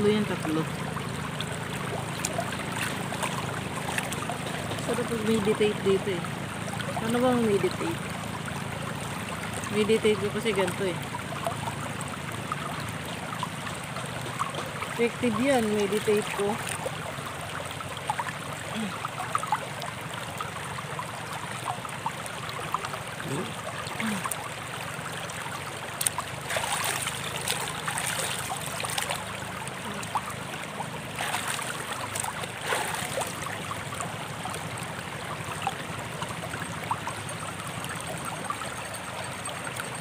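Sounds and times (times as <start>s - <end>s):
shallow river flowing: 0.0s - 40.0s
water splashing over head: 0.0s - 40.0s.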